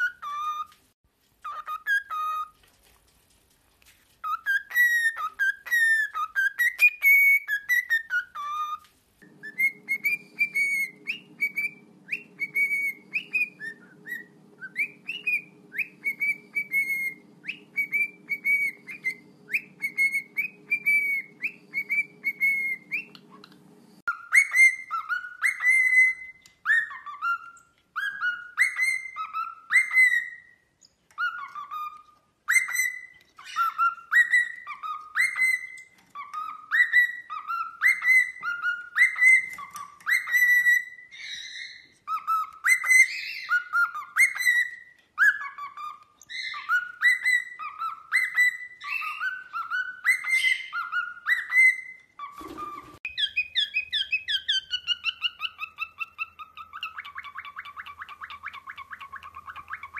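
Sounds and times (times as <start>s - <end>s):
cockatiel whistling: 0.0s - 0.8s, 1.4s - 2.6s, 4.2s - 59.9s
low steady hum: 9.1s - 24.1s.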